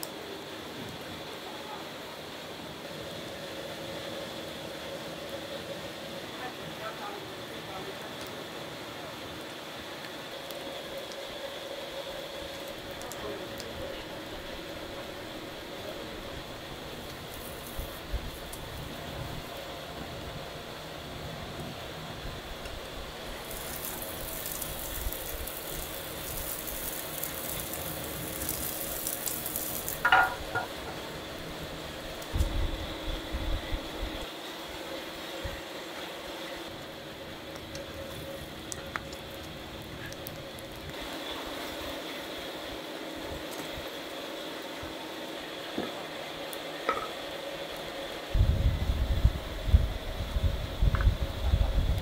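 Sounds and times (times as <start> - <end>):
wood fire crackling: 0.0 - 52.0
wind buffeting microphone: 48.4 - 52.0.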